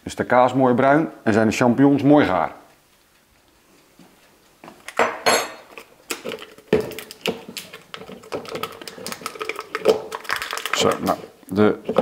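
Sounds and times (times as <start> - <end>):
containers knocking and clattering: 4.9 - 12.0.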